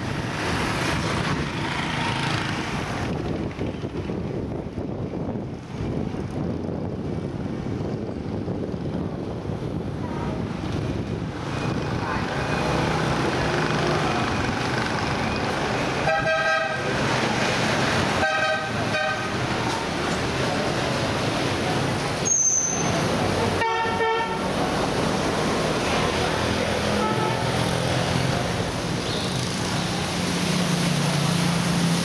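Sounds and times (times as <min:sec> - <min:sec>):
street traffic: 0:00.0 - 0:32.0
vehicle horn honking: 0:16.0 - 0:16.9, 0:18.2 - 0:19.4, 0:23.6 - 0:24.5, 0:26.9 - 0:27.6.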